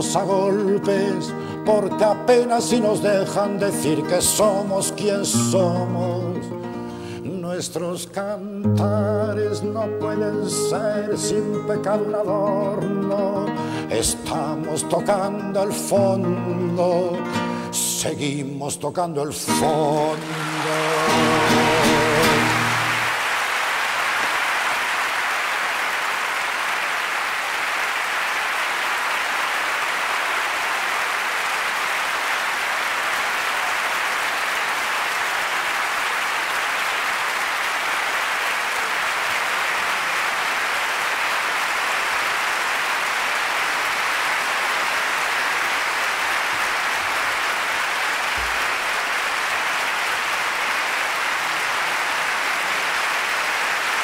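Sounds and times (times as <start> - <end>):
audience applauding: 0.0 - 7.2, 19.5 - 54.0.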